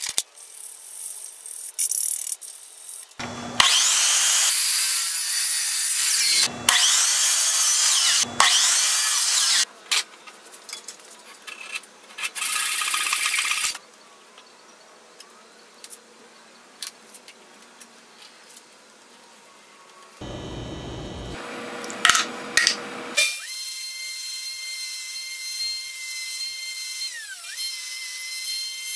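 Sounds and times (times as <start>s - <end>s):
miter saw cutting wood: 3.2s - 9.7s, 20.2s - 28.9s.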